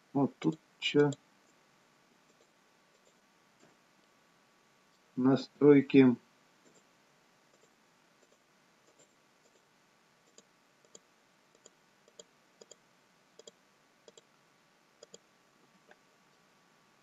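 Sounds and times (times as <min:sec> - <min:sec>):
computer mouse clicks: 0:00.4 - 0:01.2, 0:10.3 - 0:12.8, 0:13.4 - 0:14.3, 0:15.0 - 0:15.2.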